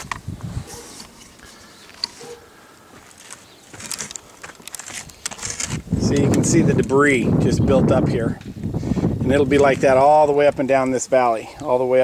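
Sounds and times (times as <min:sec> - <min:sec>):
camera handling noise: 0:00.0 - 0:02.4, 0:03.1 - 0:06.4.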